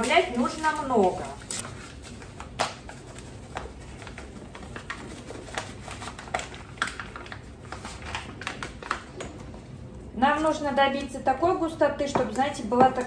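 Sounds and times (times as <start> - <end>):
paper bag rustling and crinkling: 0.0 - 9.2.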